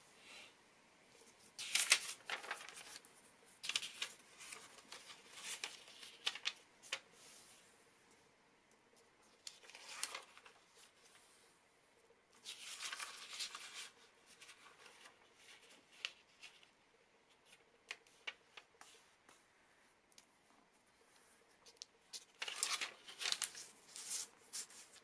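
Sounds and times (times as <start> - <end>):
paper rustling: 1.2 - 7.1, 9.2 - 11.2, 12.4 - 19.4, 21.1 - 25.0.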